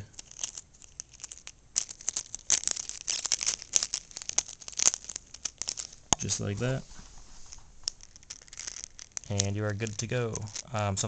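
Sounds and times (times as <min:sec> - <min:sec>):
adhesive tape crinkling: 0:00.0 - 0:11.0.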